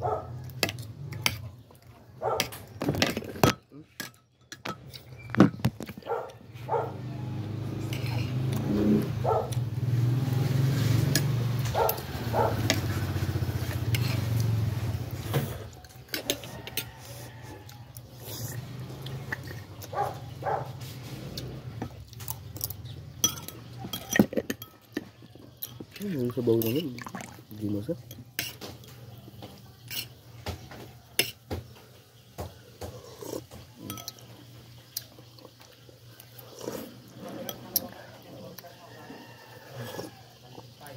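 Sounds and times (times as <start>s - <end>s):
spoon clinking against bowl: 22.7s - 26.0s, 33.8s - 34.3s.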